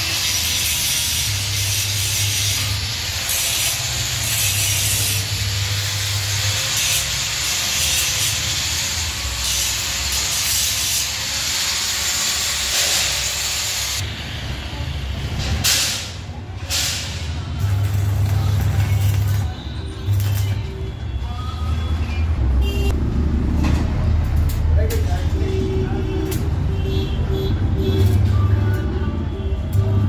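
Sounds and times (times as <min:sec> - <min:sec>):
power tool grinding steel: 0:00.0 - 0:14.0.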